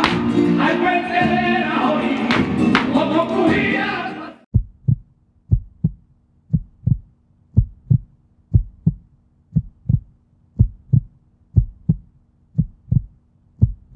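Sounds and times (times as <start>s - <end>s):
heartbeat thumps: 4.5s - 13.9s.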